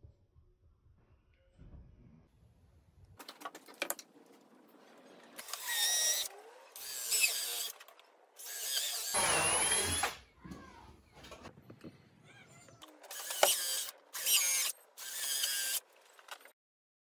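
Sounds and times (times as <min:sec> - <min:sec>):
cordless drill driving screws: 0:05.4 - 0:07.8, 0:08.4 - 0:10.2, 0:13.1 - 0:15.8.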